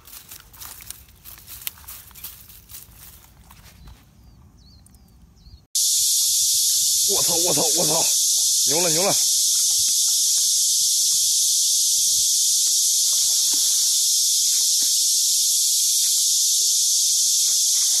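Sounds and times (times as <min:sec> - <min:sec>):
high-pitched insect chorus: 0:05.8 - 0:18.0.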